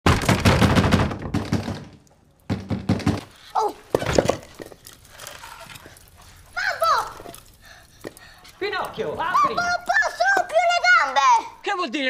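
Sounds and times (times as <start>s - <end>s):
hands pounding on wooden door: 0.1s - 3.3s.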